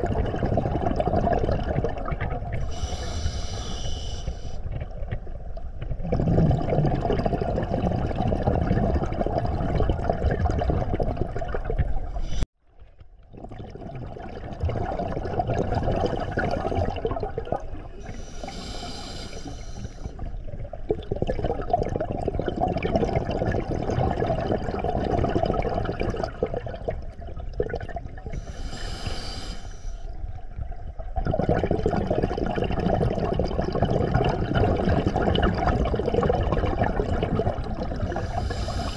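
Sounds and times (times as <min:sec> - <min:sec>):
exhaled bubbles underwater: 0:00.0 - 0:12.4, 0:13.3 - 0:29.2, 0:30.1 - 0:38.9
regulator inhalation hiss: 0:02.6 - 0:04.6, 0:18.1 - 0:20.2, 0:28.4 - 0:30.1, 0:38.2 - 0:38.9.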